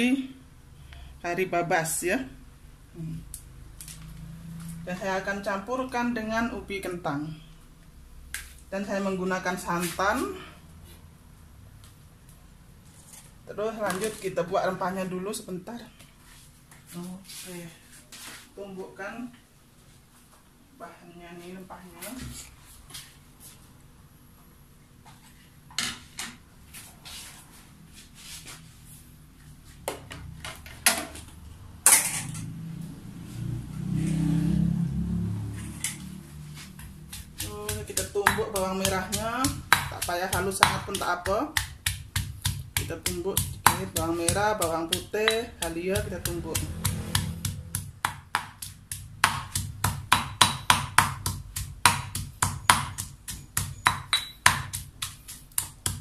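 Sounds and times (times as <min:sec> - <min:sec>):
stone pestle pounding in mortar: 0:36.8 - 0:56.0.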